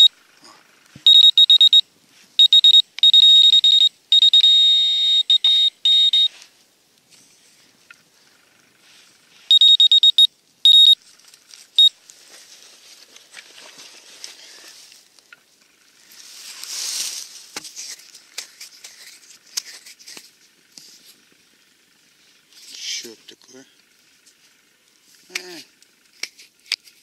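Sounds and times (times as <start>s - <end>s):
metal detector beeping: 1.0s - 6.4s, 9.4s - 11.0s, 11.8s - 12.0s.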